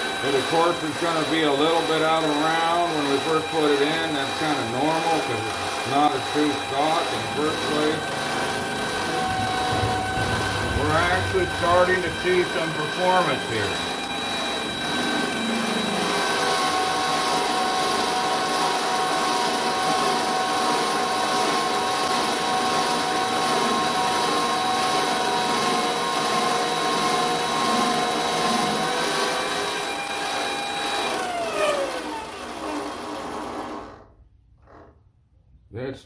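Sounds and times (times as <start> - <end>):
hiss of lathe cutting: 0.0 - 19.8
lathe motor and gear whine: 0.0 - 33.9.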